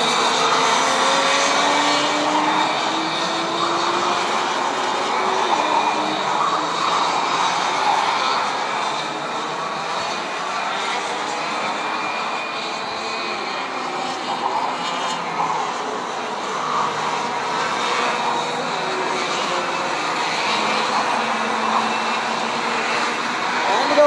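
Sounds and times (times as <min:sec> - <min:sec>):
racing kart engines buzzing: 0:00.0 - 0:24.0.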